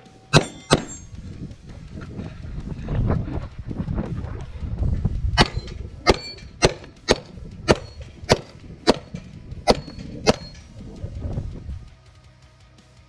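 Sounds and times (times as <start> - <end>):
pistol shots: 0.3 - 1.1, 5.4 - 10.7.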